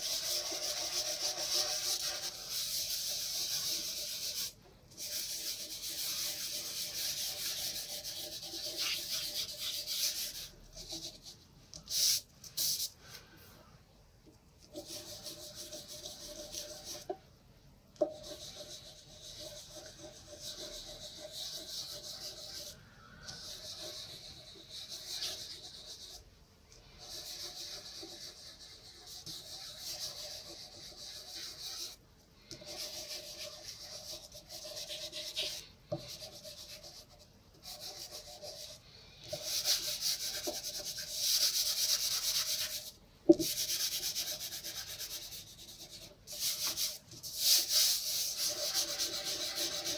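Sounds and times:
fingers rubbing pastel on paper: 0.0 - 12.0, 18.1 - 26.2, 27.0 - 49.9.

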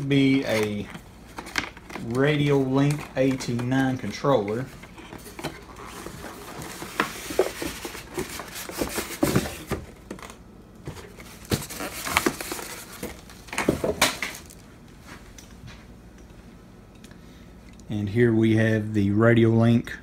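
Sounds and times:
plastic wrapping crinkling: 11.0 - 14.7.

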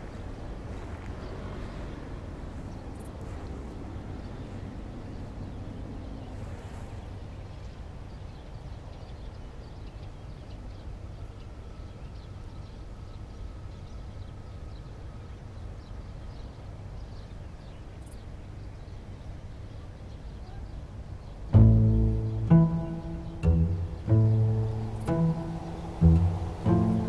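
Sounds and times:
faint bird chirps: 20.0 - 27.0
low rumble: 21.6 - 27.0.

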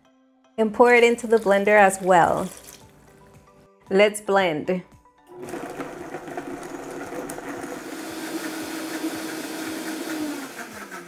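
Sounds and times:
blender motor running: 5.3 - 11.0.

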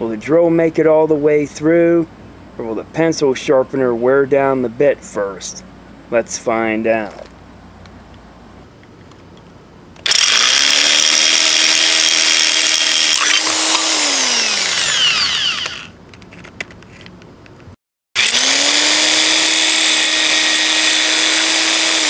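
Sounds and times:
electric drill boring into plastic: 10.0 - 16.0, 18.2 - 22.0.

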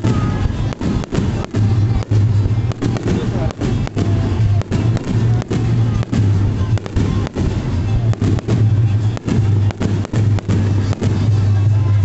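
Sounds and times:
fireworks crackle: 0.0 - 12.0
fireworks shells bursting: 0.0 - 12.0.

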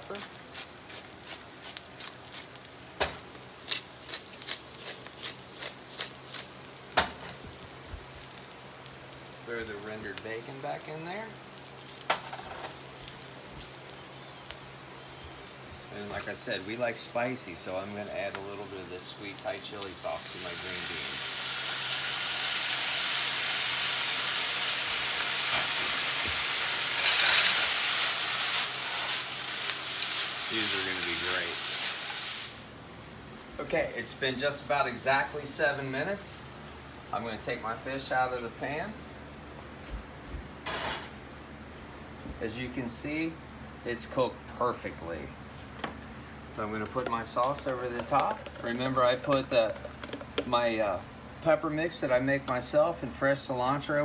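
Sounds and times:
grinder crunching rasps: 0.0 - 6.6, 25.5 - 32.2, 47.0 - 50.6
green beans sizzling in fat: 0.0 - 40.0, 40.6 - 54.0.

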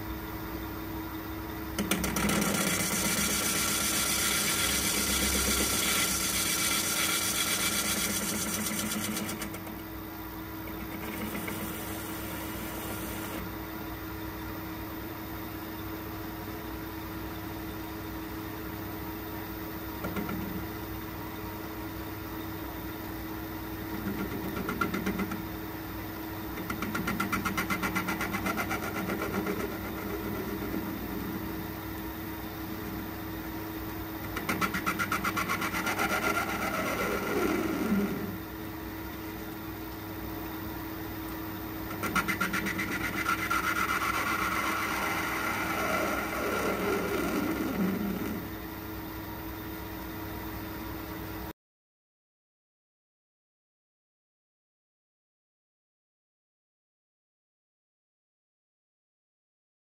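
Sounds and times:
lathe humming: 1.8 - 9.8, 10.6 - 13.5, 41.9 - 48.6
cutting tool hissing: 2.3 - 9.6.

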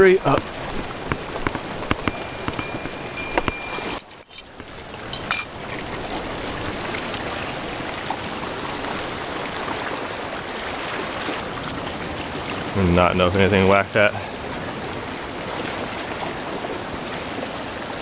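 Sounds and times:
small bell jingling: 0.0 - 5.5
waves washing over rocks: 0.0 - 18.0.

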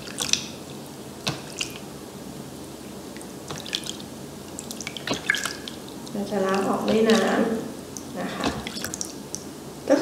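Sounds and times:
hands splashing water on face: 4.6 - 5.8.

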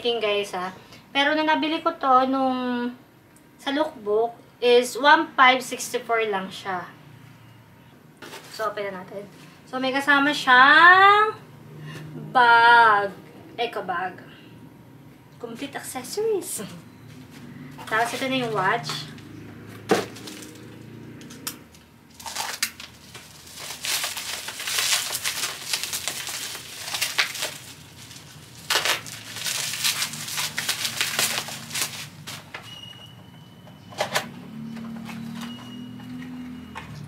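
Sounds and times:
plastic packaging crinkling: 17.4 - 19.2, 20.0 - 20.8, 21.8 - 32.7.

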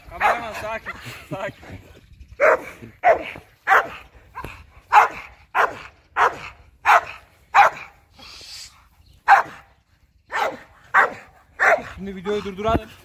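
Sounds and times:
dog barking: 0.1 - 0.6, 2.4 - 8.0, 9.2 - 9.6, 10.3 - 12.0.

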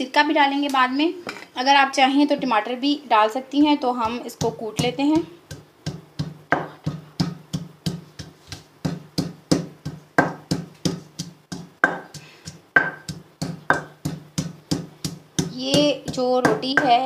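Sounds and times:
pestle pounding in stone mortar: 4.0 - 17.0.

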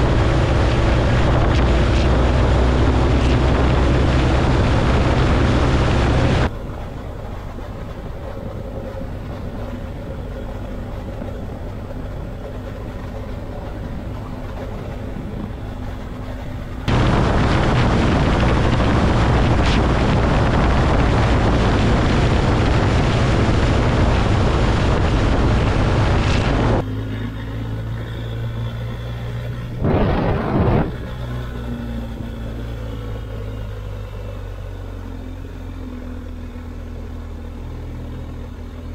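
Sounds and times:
motorcycle engine running: 0.0 - 38.9
wind rushing: 16.9 - 26.8, 29.7 - 31.4.

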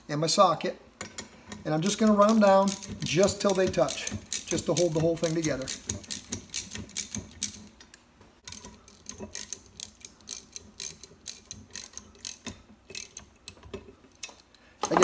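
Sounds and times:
ratchet wrench clicking: 1.9 - 7.8, 8.4 - 14.6.

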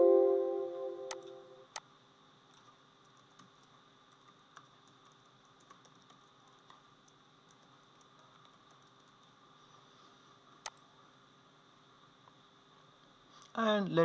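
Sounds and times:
musical chord: 0.0 - 1.6
keyboard typing: 2.6 - 9.4.

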